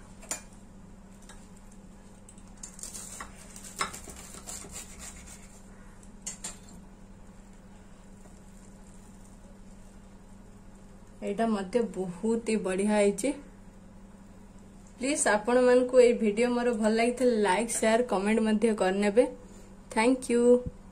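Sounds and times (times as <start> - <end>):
steady low hum: 0.0 - 20.9
knife sawing through toast: 2.8 - 5.6.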